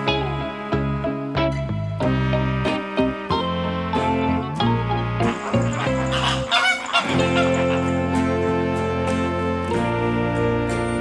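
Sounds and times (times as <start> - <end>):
background music: 0.0 - 11.0
flamingo honking: 5.1 - 8.2.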